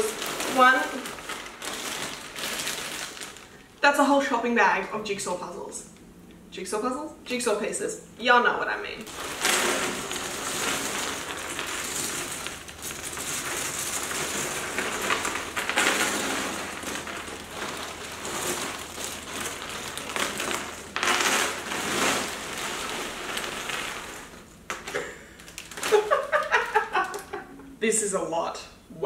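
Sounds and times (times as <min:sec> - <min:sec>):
puzzle pieces pouring onto table: 0:00.0 - 0:03.6, 0:09.0 - 0:27.4
plastic bag crinkling: 0:00.0 - 0:03.8, 0:09.0 - 0:27.5.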